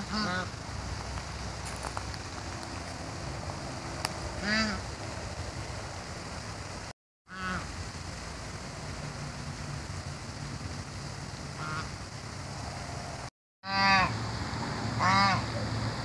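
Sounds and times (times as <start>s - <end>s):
duck quacking: 0.0s - 0.5s, 4.4s - 4.8s, 11.6s - 11.9s, 15.0s - 15.4s
steady background noise: 0.0s - 16.0s.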